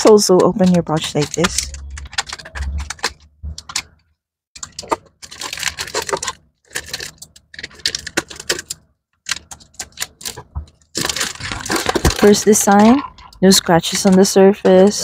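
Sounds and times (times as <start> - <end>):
plastic pouch crinkling and tearing: 4.7 - 8.7, 9.7 - 12.5.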